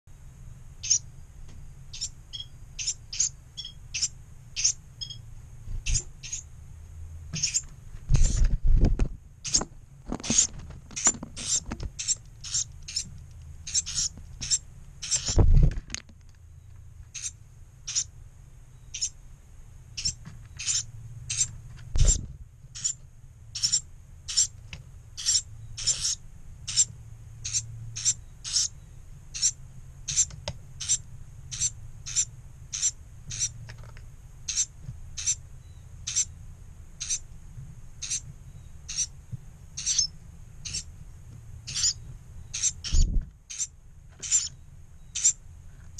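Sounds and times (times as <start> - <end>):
fledglings high begging calls: 0.8 - 1.1, 1.9 - 5.2, 5.8 - 6.5, 7.3 - 8.4, 9.4 - 9.6, 10.2 - 15.4, 17.1 - 18.1, 18.8 - 19.2, 19.9 - 24.6, 25.2 - 33.6, 34.4 - 36.4, 37.0 - 37.3, 38.0 - 39.2, 39.8 - 40.9, 41.6 - 45.4
bird wings thumping and fluttering: 8.0 - 12.0, 15.3 - 16.1.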